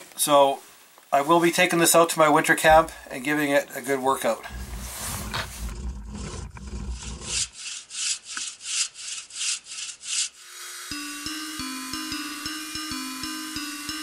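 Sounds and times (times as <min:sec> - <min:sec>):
rhythmic scraping strokes: 0:04.4 - 0:14.0
music with plucked notes: 0:10.9 - 0:14.0.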